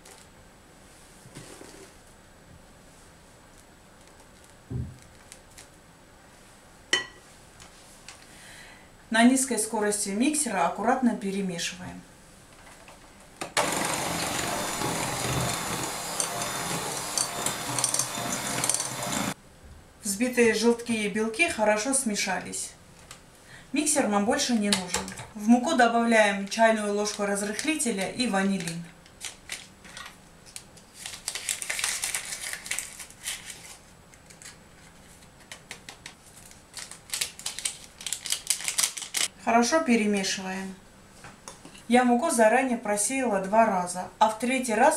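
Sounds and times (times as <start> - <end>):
electric hand mixer running: 13.6 - 19.4
paper sachet crinkling and tearing: 28.5 - 35.0, 36.2 - 39.3.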